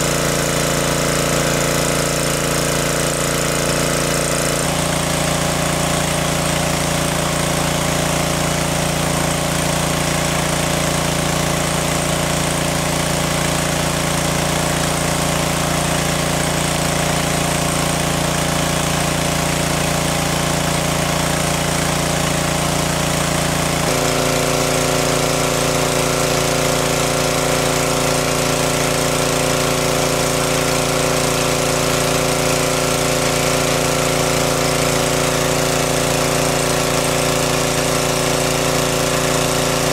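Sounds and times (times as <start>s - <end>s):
water pump engine running: 0.0s - 39.9s.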